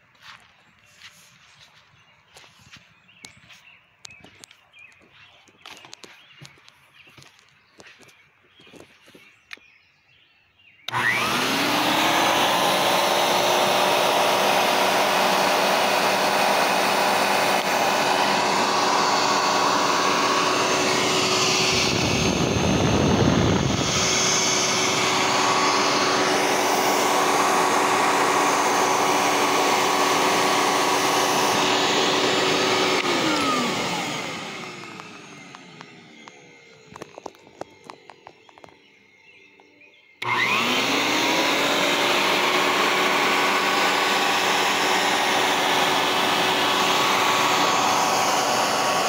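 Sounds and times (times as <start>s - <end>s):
vacuum cleaner motor whining: 10.9s - 49.0s.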